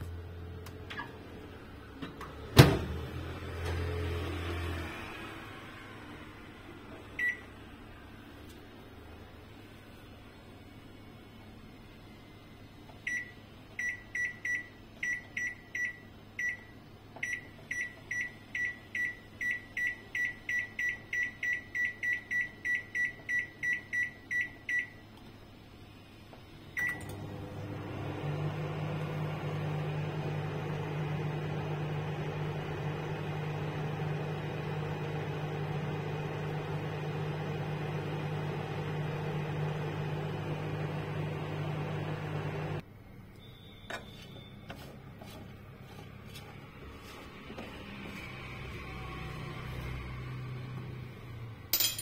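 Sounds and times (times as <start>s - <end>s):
microwave oven humming: 0.0s - 42.9s
microwave keypad beeps: 7.2s - 7.5s, 13.0s - 25.0s, 26.8s - 27.1s.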